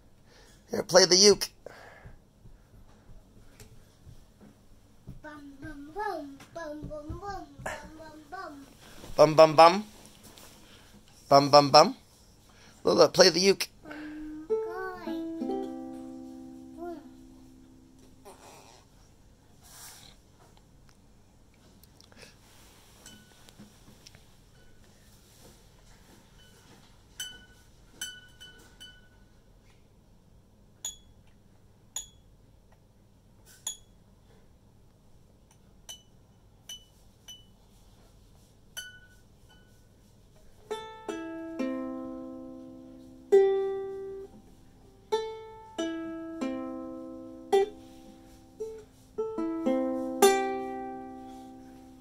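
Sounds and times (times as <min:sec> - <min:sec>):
ukulele plinks and strums: 0:14.3 - 0:18.0, 0:40.7 - 0:44.3, 0:45.1 - 0:48.0, 0:48.6 - 0:52.0.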